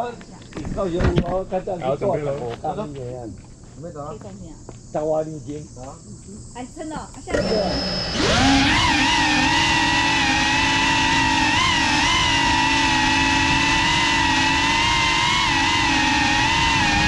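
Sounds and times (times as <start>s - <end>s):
drone motors whining: 6.6s - 17.0s.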